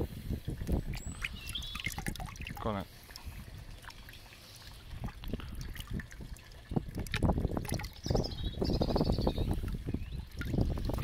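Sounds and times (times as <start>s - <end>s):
water splashing in a tub: 0.4s - 11.0s.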